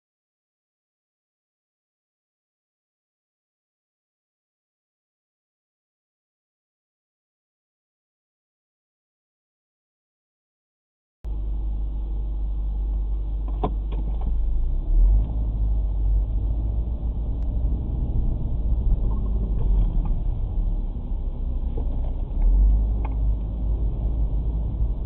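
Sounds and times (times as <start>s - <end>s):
car engine and road rumble: 11.3s - 25.0s.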